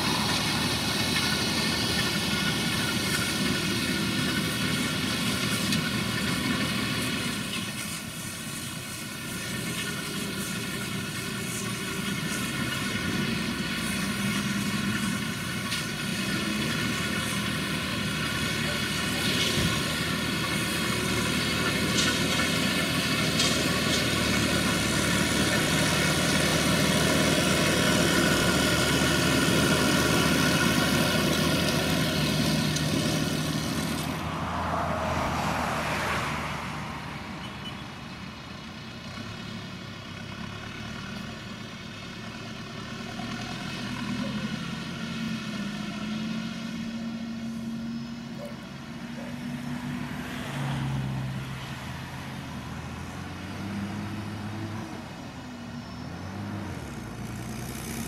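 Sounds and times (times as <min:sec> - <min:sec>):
baler machinery running: 0:00.0 - 0:34.2
tractor engine running: 0:00.0 - 0:35.9, 0:36.6 - 0:58.0.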